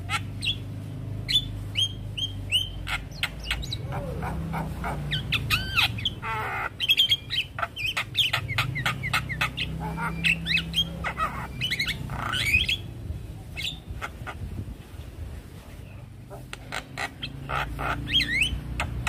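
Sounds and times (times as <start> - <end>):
myna calling: 1.3 - 13.0, 16.3 - 19.0.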